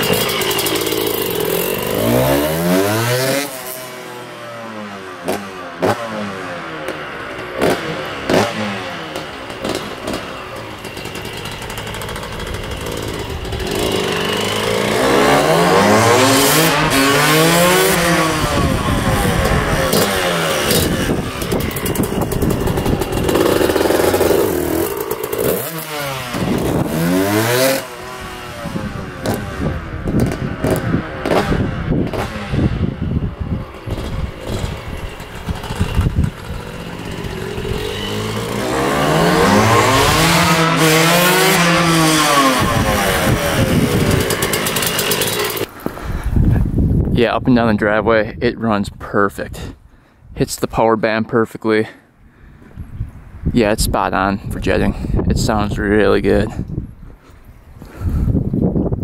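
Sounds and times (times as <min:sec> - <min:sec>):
two-stroke dirt bike engine revving: 0:00.0 - 0:45.7.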